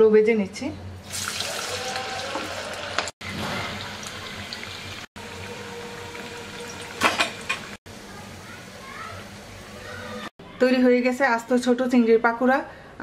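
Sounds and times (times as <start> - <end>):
hot oil sizzling: 1.0 - 10.3.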